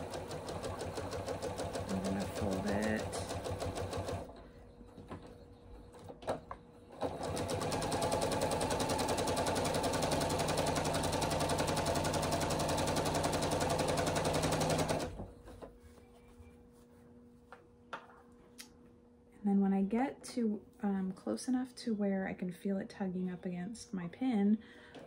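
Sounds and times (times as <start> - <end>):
sewing machine stitching: 0.0 - 4.3, 7.0 - 15.3.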